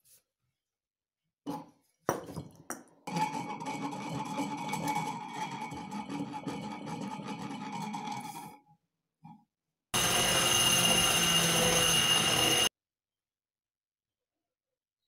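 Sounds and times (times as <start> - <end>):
bench grinder grinding steel: 10.0 - 12.7.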